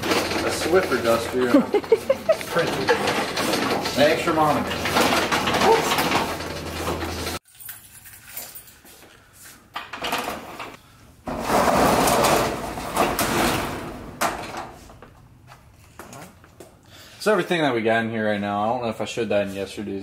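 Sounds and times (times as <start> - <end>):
metal roll-up door rattling: 0.0 - 7.4, 9.9 - 15.1
handling noise: 0.0 - 16.8.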